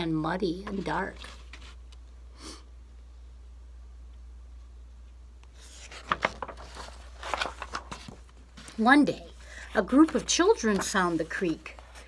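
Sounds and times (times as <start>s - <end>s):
low steady hum: 0.0s - 12.0s
paper page rustling: 0.7s - 1.8s, 5.5s - 8.8s, 9.7s - 12.0s.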